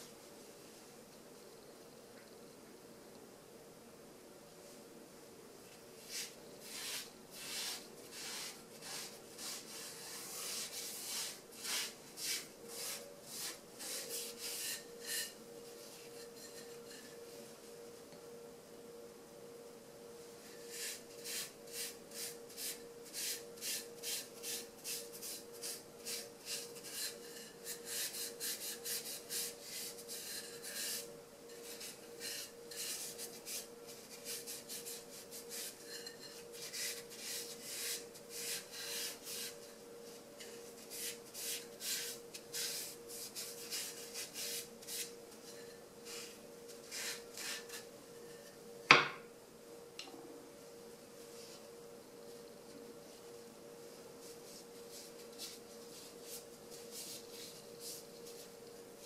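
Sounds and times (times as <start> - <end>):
wooden utensil knocking on table: 48.9 - 49.2.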